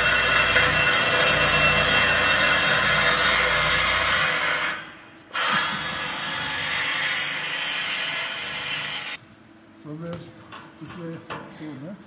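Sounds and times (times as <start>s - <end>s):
electric drill boring through steel: 0.0s - 9.2s.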